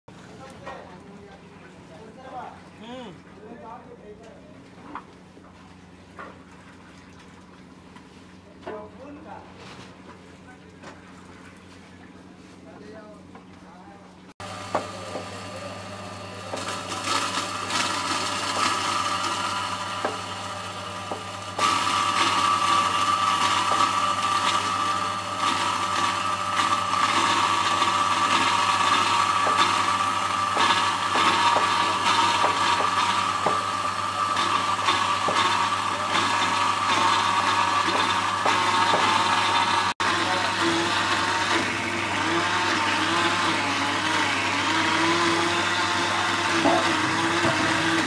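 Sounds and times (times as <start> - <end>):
grinding machine motor hum: 14.4 - 48.0
knocks in grinder: 14.6 - 15.3, 30.5 - 33.8, 34.5 - 35.6, 36.3 - 39.6, 46.6 - 48.0.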